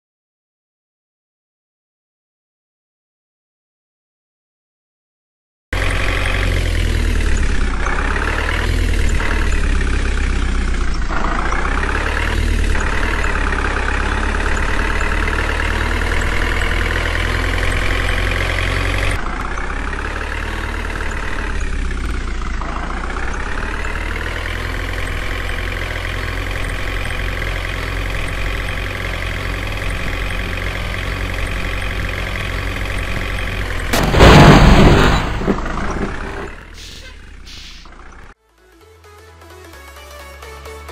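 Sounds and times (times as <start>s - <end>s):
truck engine revving: 5.8s - 38.4s
toy truck crashing: 33.9s - 36.8s.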